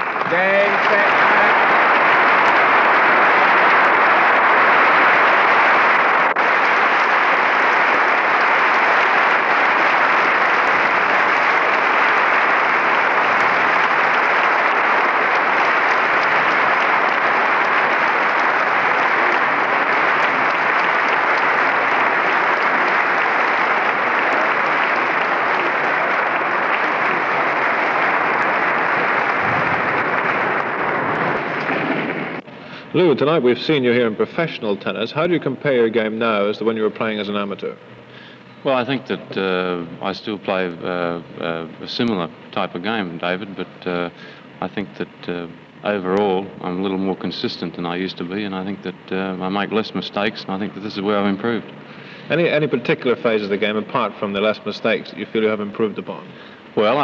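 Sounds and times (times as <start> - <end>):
audience applauding: 0.0 - 33.9, 46.2 - 57.0.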